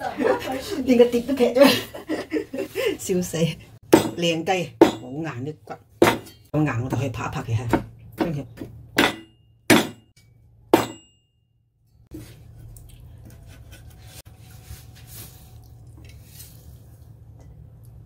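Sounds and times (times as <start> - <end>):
cleaver chopping bones on board: 9.0 - 10.0
steel blade ringing: 9.0 - 11.3.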